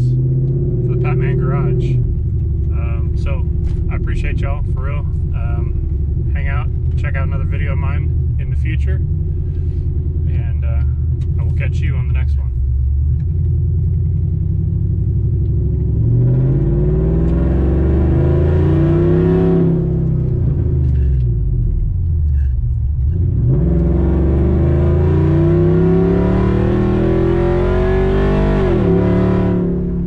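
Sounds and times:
truck engine accelerating: 0.0s - 30.0s.

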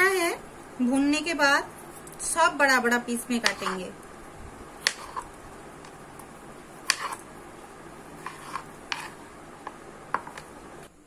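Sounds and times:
faint steady hiss: 0.0s - 11.0s
knife tapping on cutting board: 10.1s - 10.4s.

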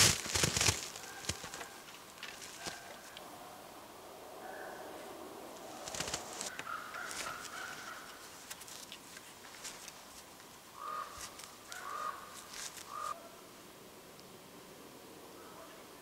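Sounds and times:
wire snares clicking and scraping: 0.0s - 3.2s, 5.7s - 10.5s, 11.1s - 13.2s.

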